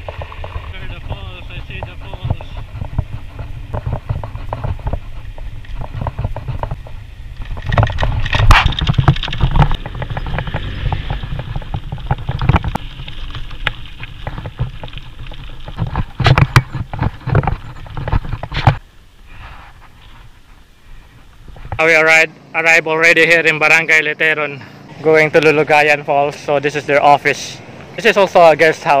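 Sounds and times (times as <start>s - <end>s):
wind on microphone: 0.0s - 21.8s
bike rattling over rough path: 0.0s - 29.0s.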